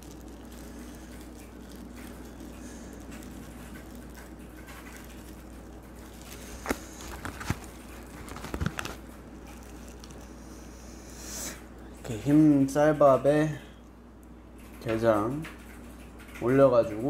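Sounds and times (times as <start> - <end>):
soft squishing of raw crab: 0.0 - 12.9
low steady hum: 0.0 - 17.0.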